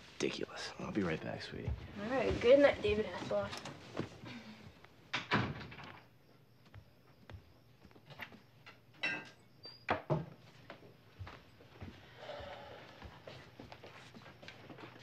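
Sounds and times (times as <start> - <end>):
soft footsteps: 1.0 - 5.0, 6.0 - 8.9, 10.3 - 15.0.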